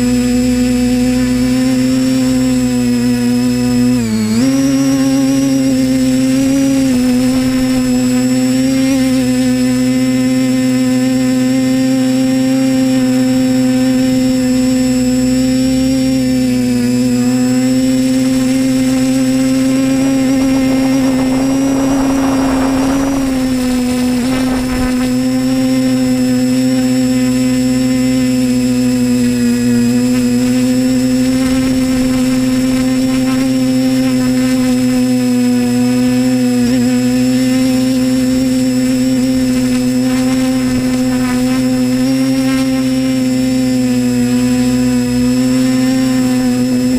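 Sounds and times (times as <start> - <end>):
drone motors and propellers humming: 0.0 - 46.9
wind rushing: 19.7 - 25.4.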